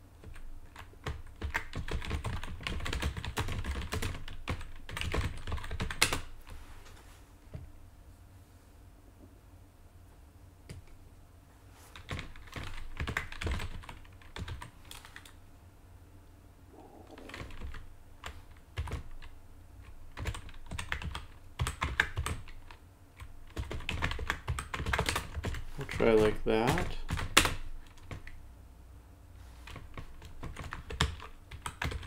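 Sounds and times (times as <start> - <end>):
keyboard typing: 0.2 - 6.3, 12.0 - 15.4, 17.0 - 28.4, 29.7 - 32.0.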